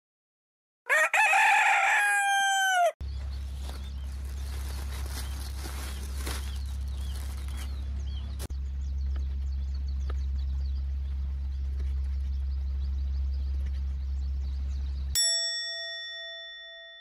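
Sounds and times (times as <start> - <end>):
birds chirping: 1.3 - 15.3
steady low hum: 3.0 - 15.2
plastic bag crinkling: 3.5 - 8.5.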